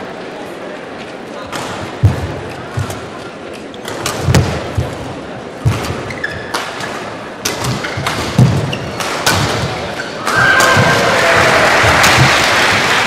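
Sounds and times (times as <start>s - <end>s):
crowd noise hum: 0.0s - 13.0s
rackets hitting shuttlecock: 3.8s - 11.1s, 11.8s - 12.5s.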